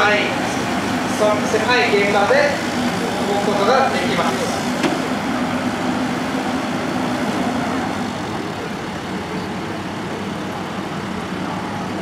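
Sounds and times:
diesel engine and hydraulics: 0:00.0 - 0:12.0
steady hum: 0:00.0 - 0:12.0.

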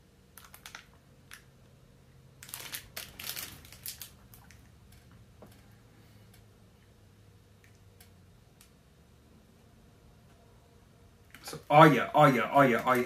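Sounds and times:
plastic wrapper crinkling: 0:02.4 - 0:04.7.

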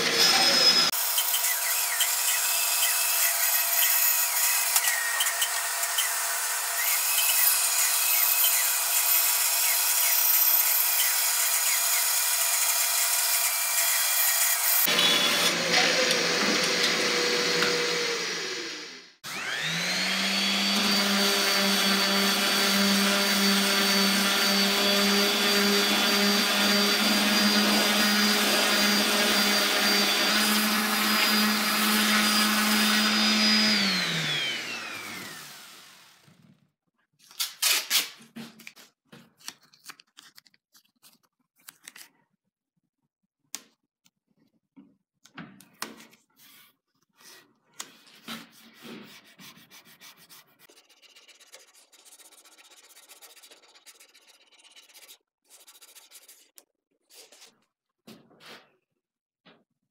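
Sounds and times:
bandsaw running: 0:00.0 - 0:36.3
electric orbital sander: 0:00.0 - 0:36.3
sandpaper rubbed on wood: 0:48.5 - 0:56.5.

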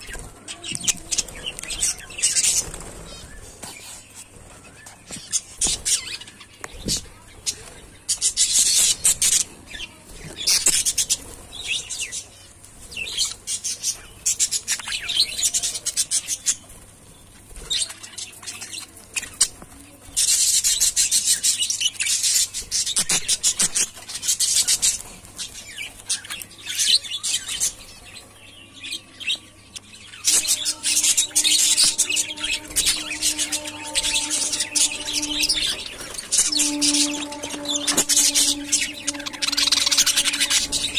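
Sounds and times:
budgerigars chattering: 0:30.2 - 0:40.9.

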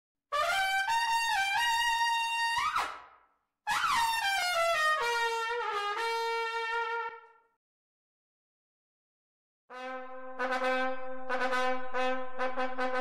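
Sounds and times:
trumpet fanfare: 0:03.9 - 0:07.4, 0:09.7 - 0:13.0.

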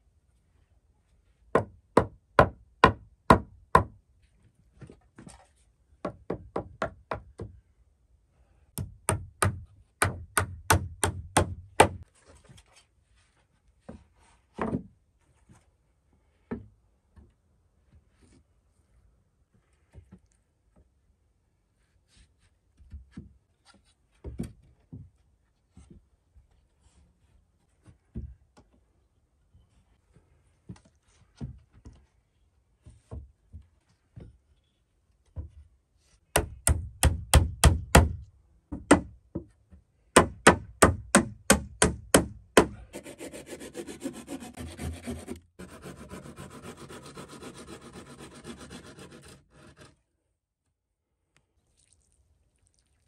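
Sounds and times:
hammer blows nailing wood: 0:08.8 - 0:12.0, 0:36.3 - 0:39.1, 0:40.1 - 0:43.0
rasping on wood: 0:42.6 - 0:50.0.

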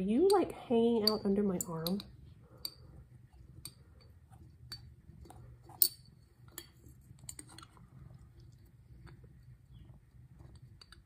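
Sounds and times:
metal hook clinking on glass: 0:05.7 - 0:06.7.

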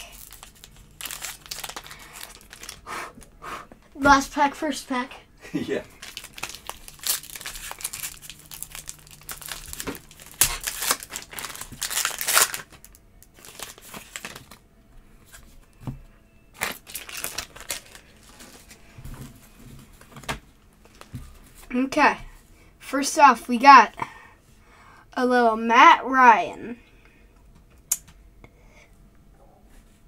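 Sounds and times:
foil wrapper tearing and crinkling: 0:00.0 - 0:02.8, 0:05.9 - 0:14.6, 0:16.6 - 0:18.7.

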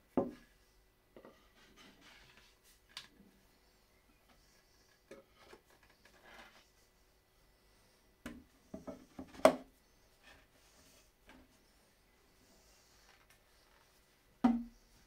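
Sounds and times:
wooden knocks and clunks: 0:14.4 - 0:14.8.

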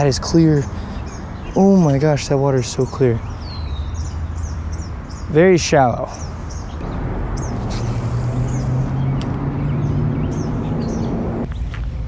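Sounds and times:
high bird chirps: 0:02.6 - 0:11.7
low motor hum: 0:06.8 - 0:11.5.

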